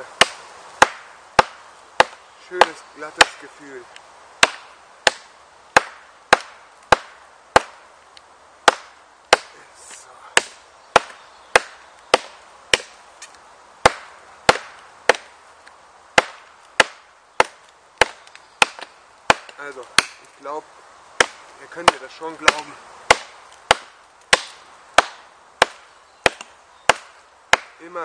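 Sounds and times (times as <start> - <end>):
knife chopping into dry log: 0.2 - 3.5, 4.4 - 7.8, 8.6 - 15.3, 16.2 - 20.3, 21.2 - 27.8.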